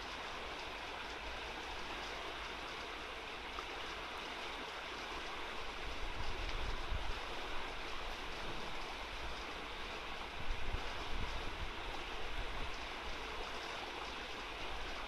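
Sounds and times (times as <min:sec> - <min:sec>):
river water rushing over rocks: 0:00.0 - 0:15.0
wind gusts hitting microphone: 0:10.3 - 0:12.8.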